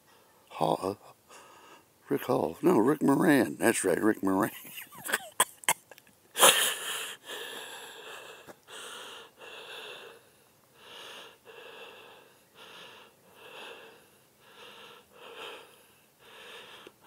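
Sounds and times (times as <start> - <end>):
person breathing heavily: 1.3 - 1.9, 6.4 - 17.0.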